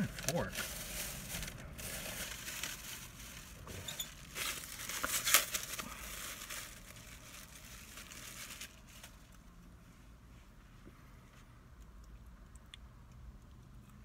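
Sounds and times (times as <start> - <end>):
plastic wrapping crinkling: 0.0 - 9.5.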